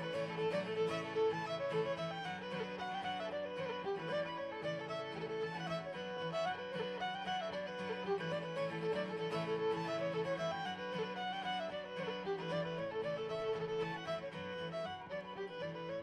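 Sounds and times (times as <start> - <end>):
fiddle playing quick notes: 0.0 - 16.0.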